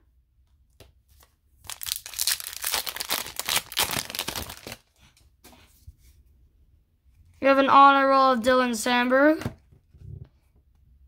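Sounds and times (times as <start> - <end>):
foil wrapper crinkling and tearing: 1.6 - 4.9.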